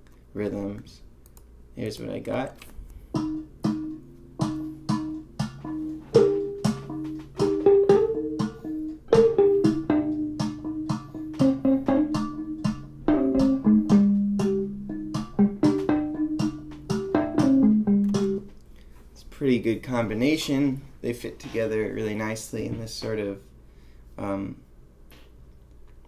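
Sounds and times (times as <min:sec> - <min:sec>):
sharp percussive hits: 0:03.1 - 0:18.5
muted electric guitar: 0:03.2 - 0:18.6.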